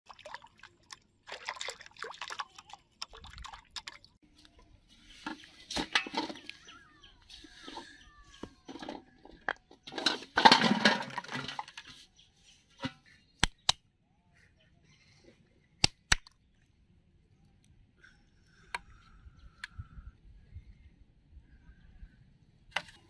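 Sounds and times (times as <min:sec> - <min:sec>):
plastic bottles clattering: 0:05.2 - 0:06.6, 0:07.6 - 0:12.0.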